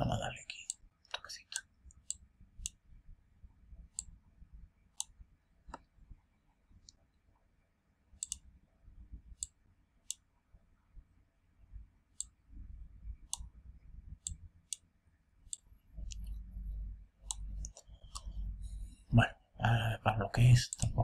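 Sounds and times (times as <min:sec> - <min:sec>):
computer mouse clicking: 0:01.9 - 0:02.8, 0:03.9 - 0:04.1, 0:08.2 - 0:08.4, 0:15.5 - 0:16.5, 0:17.2 - 0:18.5, 0:20.7 - 0:21.0
faint low rumbles: 0:10.5 - 0:14.8, 0:15.6 - 0:21.0.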